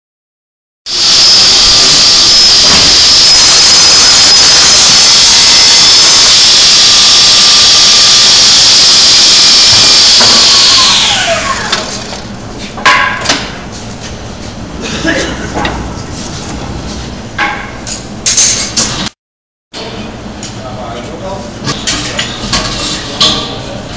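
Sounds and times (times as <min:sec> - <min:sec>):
panel saw whining: 0:00.9 - 0:12.1.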